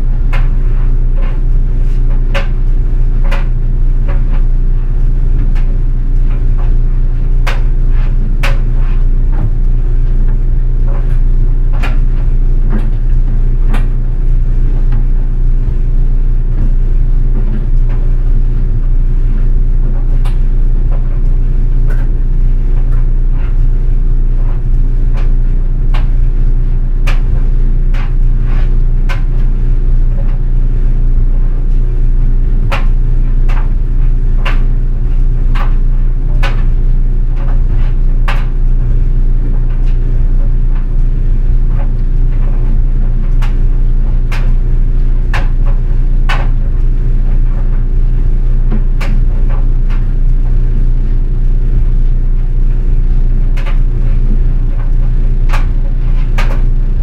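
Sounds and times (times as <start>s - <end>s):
dryer humming: 0.0s - 57.0s
metal clicks against dryer drum: 0.2s - 23.8s, 27.0s - 30.5s, 32.6s - 50.6s, 53.6s - 57.0s.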